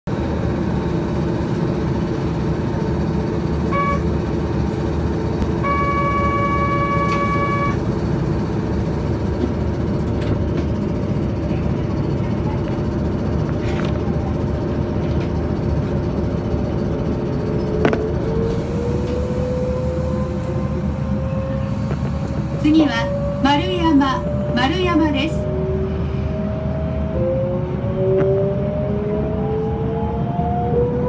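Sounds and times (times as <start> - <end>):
train humming: 0.1 - 31.0
buzzer tone: 3.7 - 4.1, 5.5 - 7.8.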